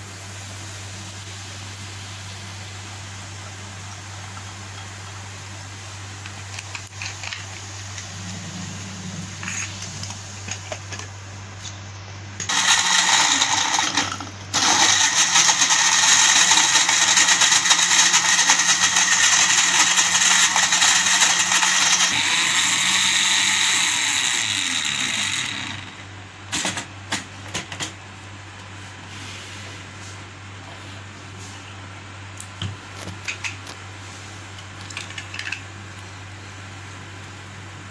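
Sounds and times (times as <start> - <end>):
steady low hum: 0.0 - 12.5
blender motor running: 12.4 - 26.1.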